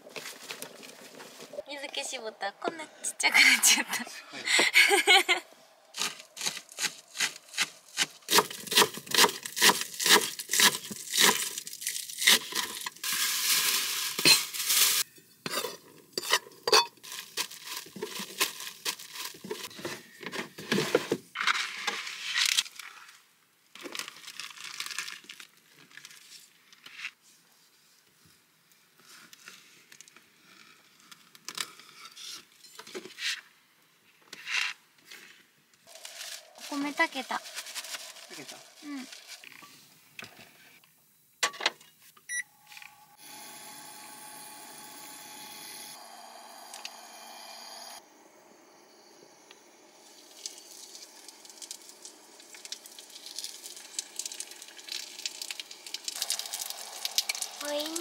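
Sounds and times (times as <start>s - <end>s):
wrappings rustling: 10.3s - 15.1s, 17.0s - 19.7s, 35.9s - 39.6s.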